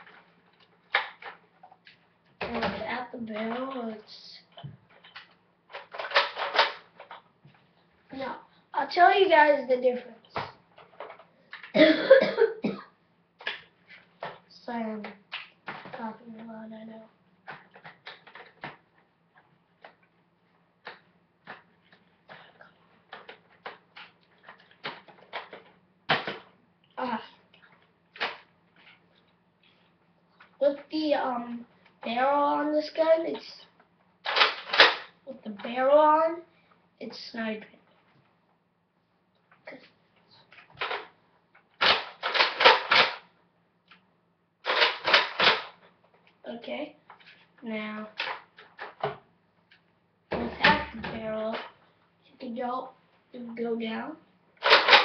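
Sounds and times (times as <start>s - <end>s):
plastic toy parts clicking: 4.5s - 7.2s, 17.4s - 18.8s, 23.1s - 26.5s, 27.7s - 29.0s, 34.2s - 35.1s, 40.5s - 41.1s, 41.8s - 43.3s, 44.7s - 45.8s, 48.1s - 49.1s, 54.6s - 55.0s.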